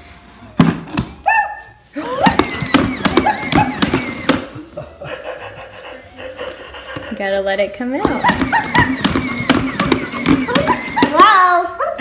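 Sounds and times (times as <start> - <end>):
toy puppy yipping and barking: 1.2 - 4.5, 8.0 - 12.0
stick tapping on cardboard box: 8.0 - 11.2.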